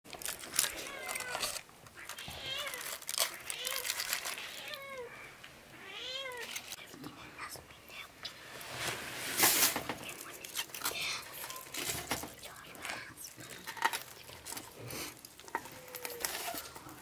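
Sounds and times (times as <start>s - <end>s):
aluminium foil crinkling: 0.1s - 5.1s, 6.0s - 7.0s, 8.8s - 17.0s.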